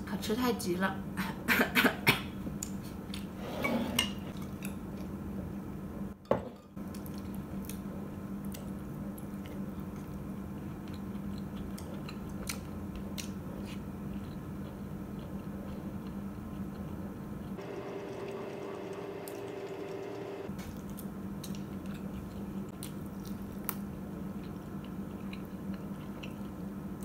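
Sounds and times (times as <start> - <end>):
steady low hum: 6.8 - 27.0
faint chewing: 6.9 - 17.6, 20.6 - 27.0.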